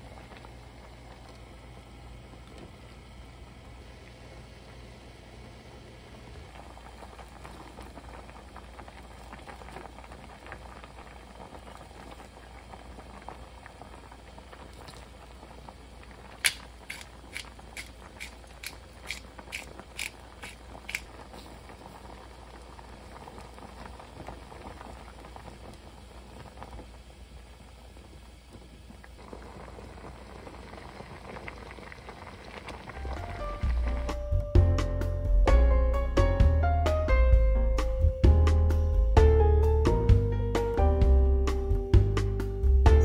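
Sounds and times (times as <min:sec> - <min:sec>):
stew bubbling at a boil: 0:00.0 - 0:34.3.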